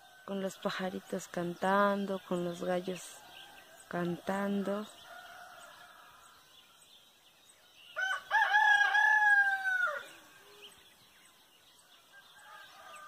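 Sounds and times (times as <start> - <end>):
rooster crowing: 5.0 - 6.4, 8.0 - 10.2, 12.1 - 13.0.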